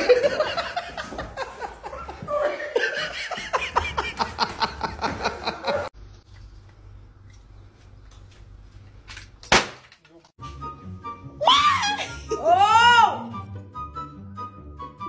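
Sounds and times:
person laughing hard: 0.0 - 5.9.

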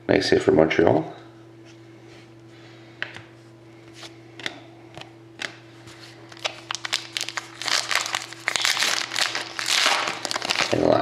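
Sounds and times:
foil wrapper crinkling: 6.2 - 11.0.

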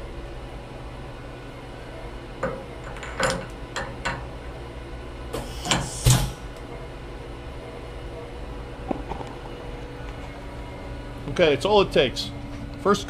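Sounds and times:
steady machine hum: 0.0 - 13.0
blast of air: 5.4 - 6.4.

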